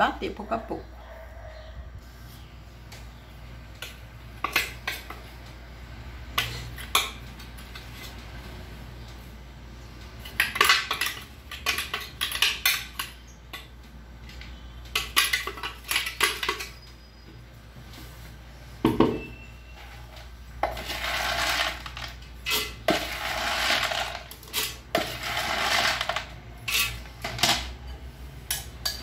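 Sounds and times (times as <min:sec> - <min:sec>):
metal spoon clinking on bowls: 0:23.9 - 0:29.0.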